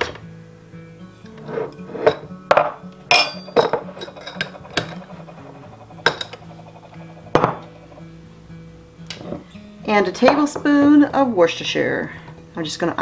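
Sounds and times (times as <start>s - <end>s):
soft background music: 0.0s - 13.0s
metal scoop clinking against glass: 3.1s - 6.8s.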